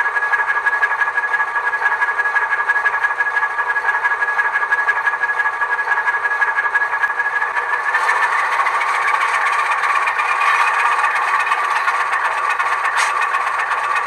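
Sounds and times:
model locomotive diesel idling sound: 0:00.0 - 0:14.0
locomotive function sound: 0:07.9 - 0:14.0.

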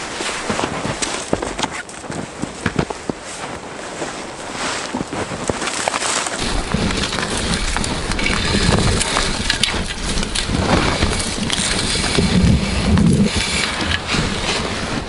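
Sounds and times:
twigs scraping and snapping: 0:00.0 - 0:03.3, 0:04.5 - 0:15.0
footsteps crunching in deep snow: 0:00.0 - 0:15.0
wind rumble on microphone: 0:06.4 - 0:15.0.

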